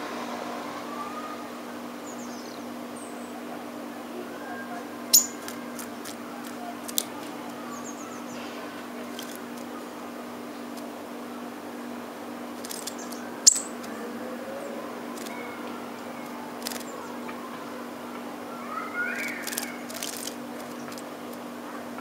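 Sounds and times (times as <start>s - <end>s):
low background hum: 0.0s - 22.0s
bird splashing in water: 19.2s - 21.0s.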